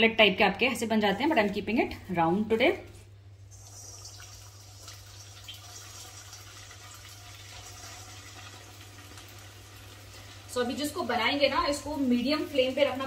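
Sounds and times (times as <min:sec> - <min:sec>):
food frying in hot oil: 0:03.5 - 0:13.0.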